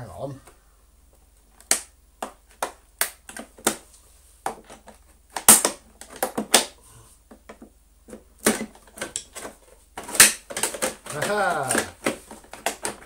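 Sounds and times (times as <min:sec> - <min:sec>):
plastic shell clicking and creaking: 0:07.3 - 0:13.0.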